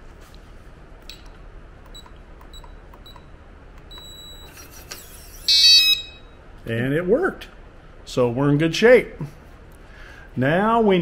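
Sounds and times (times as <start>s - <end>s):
keypad beeping: 1.9s - 4.6s
keypad buzz: 1.9s - 6.2s.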